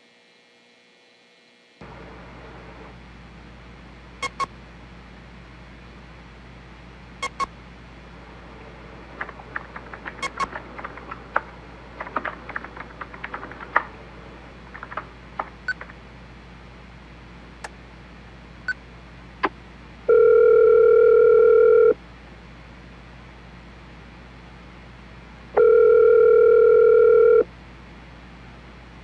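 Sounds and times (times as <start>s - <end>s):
clicks and taps: 8.7s - 16.0s
telephone electronic ring: 20.1s - 22.0s, 25.6s - 27.4s.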